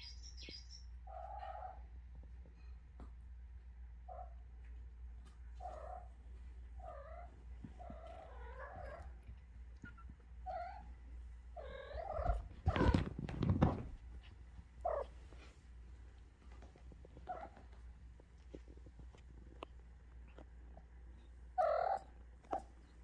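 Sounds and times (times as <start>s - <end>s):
rustle of fur and blanket: 12.0s - 20.6s.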